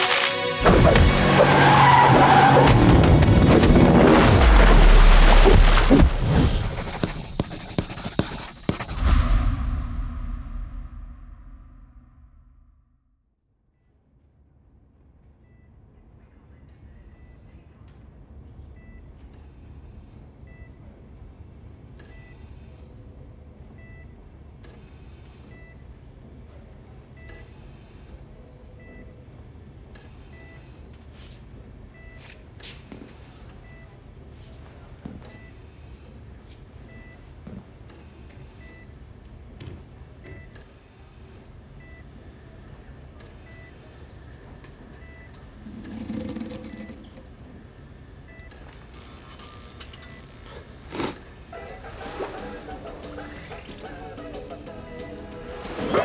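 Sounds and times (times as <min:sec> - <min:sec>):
patient monitor beeping: 0:06.6 - 0:09.2, 0:44.9 - 0:47.5, 0:51.6 - 0:56.0.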